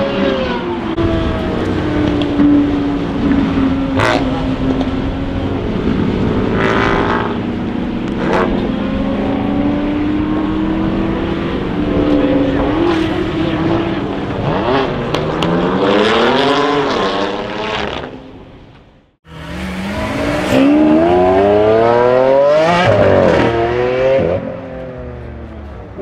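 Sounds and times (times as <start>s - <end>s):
loud engine revving: 0.0s - 4.8s, 5.6s - 18.1s, 19.3s - 24.6s
car engine revving hard: 5.9s - 7.5s, 19.3s - 24.5s.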